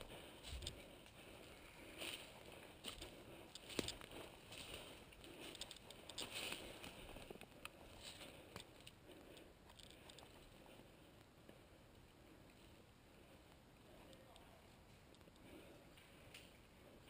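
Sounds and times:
footsteps on dry pine needles: 0:00.0 - 0:08.9.

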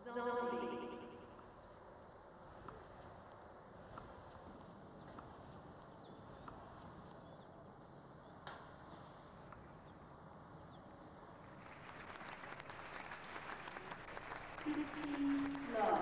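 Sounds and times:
crowd applauding: 0:11.5 - 0:16.0.

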